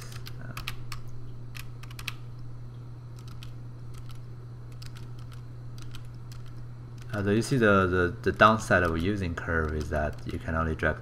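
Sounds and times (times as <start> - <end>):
computer keyboard typing: 0.0 - 2.2, 3.2 - 7.2, 8.3 - 10.5
steady low hum: 0.0 - 11.0.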